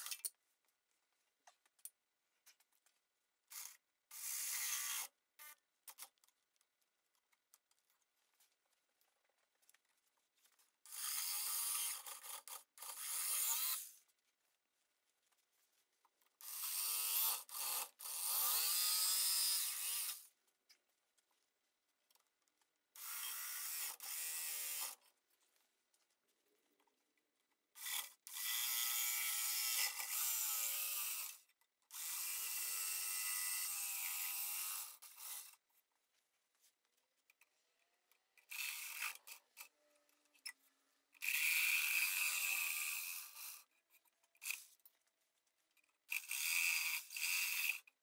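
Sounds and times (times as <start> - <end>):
jigsaw cutting wood: 10.9 - 13.9, 16.4 - 20.2, 27.8 - 35.5, 38.5 - 39.3, 41.2 - 43.6, 46.1 - 47.9.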